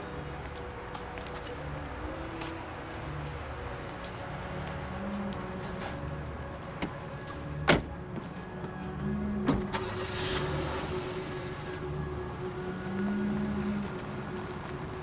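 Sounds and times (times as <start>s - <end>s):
car door slamming: 7.6s - 7.9s.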